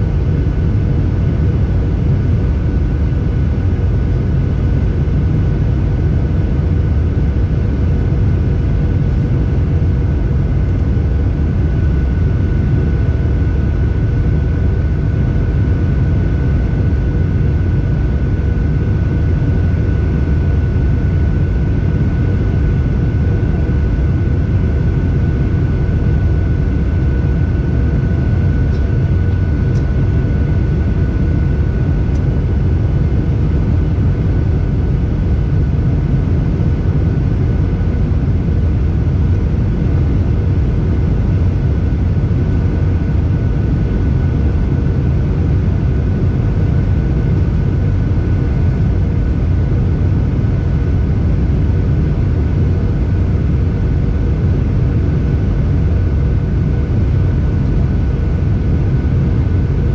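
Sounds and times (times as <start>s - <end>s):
airplane cabin rumble: 0.0s - 59.9s
thin steady whine: 0.0s - 59.9s.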